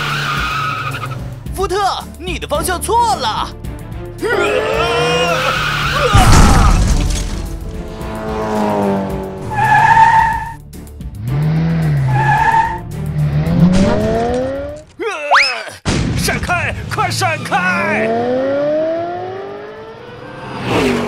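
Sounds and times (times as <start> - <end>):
cartoon car tires squealing: 0.0 - 1.2, 4.3 - 6.9, 9.4 - 10.6, 11.8 - 12.9
background music: 0.0 - 15.2.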